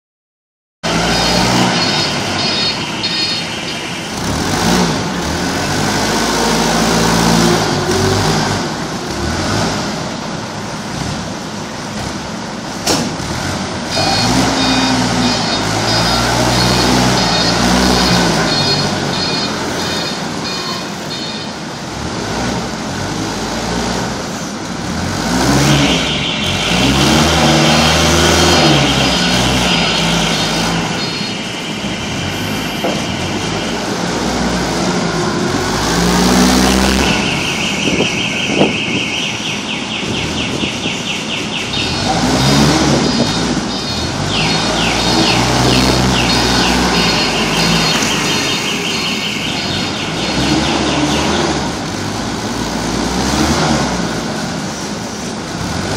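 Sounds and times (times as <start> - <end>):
forklift engine revving: 0.8 - 55.9
steady high tone: 0.9 - 4.2, 13.9 - 21.8, 42.9 - 51.4.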